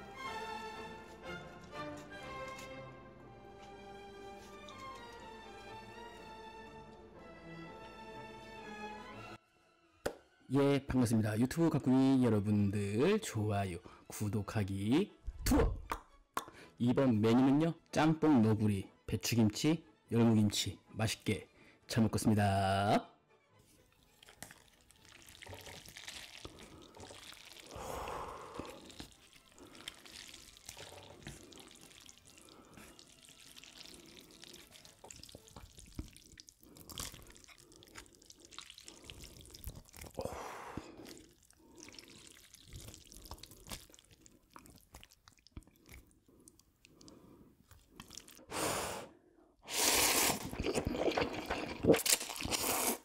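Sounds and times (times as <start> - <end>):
wet chewing: 4.3 - 5.4, 24.0 - 48.5, 49.7 - 53.0
slurping noodles: 24.0 - 53.0.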